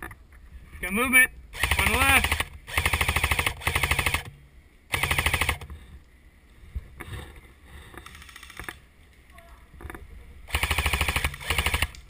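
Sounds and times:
airsoft rifle full-auto bursts: 0:01.5 - 0:04.3, 0:04.9 - 0:05.7, 0:10.5 - 0:12.0.

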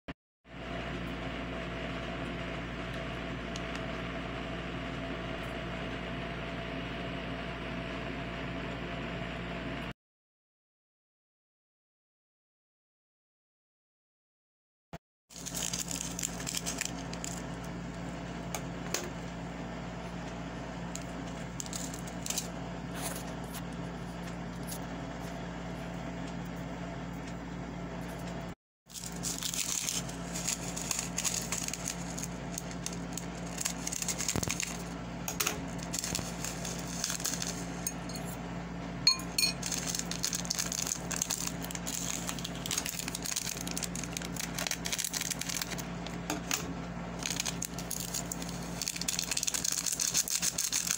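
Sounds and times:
seasoning being shaken out: 0:15.3 - 0:17.3, 0:28.9 - 0:34.9, 0:35.8 - 0:37.9, 0:39.6 - 0:45.8, 0:47.2 - 0:50.9
foil sachets crinkling: 0:15.3 - 0:17.6, 0:21.0 - 0:23.3, 0:28.9 - 0:35.0, 0:35.6 - 0:38.0, 0:39.5 - 0:46.6, 0:47.2 - 0:50.9
steady low hum: 0:15.4 - 0:50.9.

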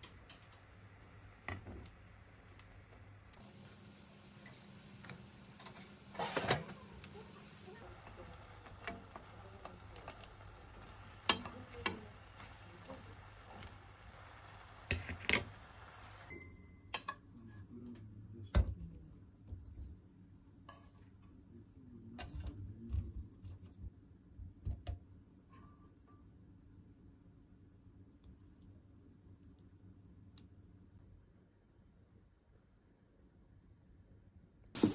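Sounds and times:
sauce sizzling in pan: 0:00.2 - 0:16.3
chopsticks clicking on pan: 0:08.0 - 0:14.2, 0:16.9 - 0:17.2.

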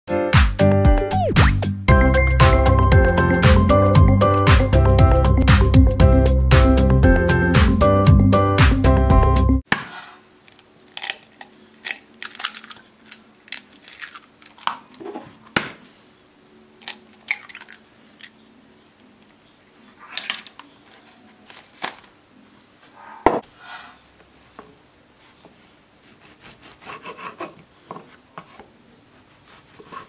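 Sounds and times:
eggshells cracking on a bowl: 0:10.4 - 0:15.8, 0:16.8 - 0:18.4.

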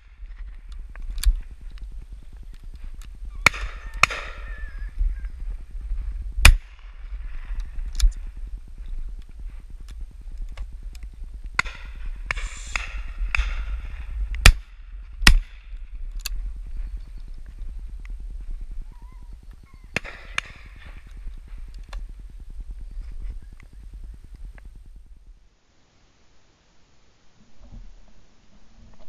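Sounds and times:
distant faint gunshots: 0:03.4 - 0:04.7, 0:11.6 - 0:15.7, 0:19.8 - 0:21.1
loud shotgun shots: 0:03.4 - 0:04.7, 0:11.6 - 0:15.7.

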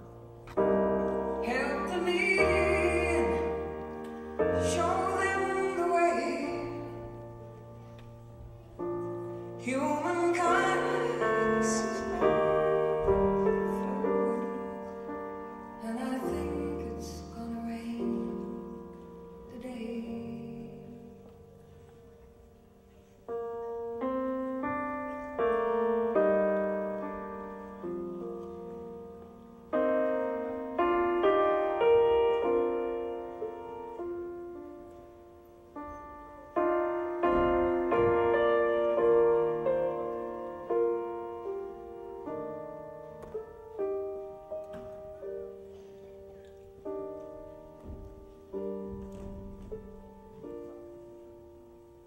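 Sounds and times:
slow piano chords: 0:00.0 - 0:52.0.

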